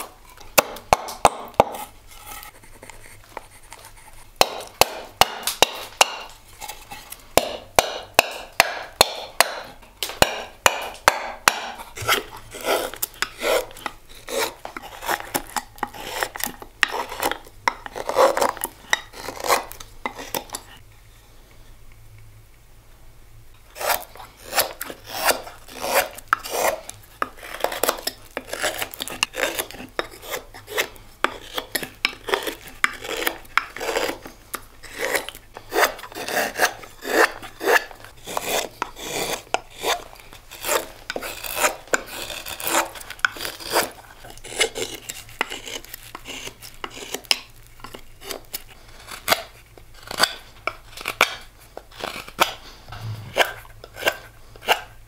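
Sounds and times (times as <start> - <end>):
knife scraping wood: 0.0 - 20.8, 23.8 - 55.0.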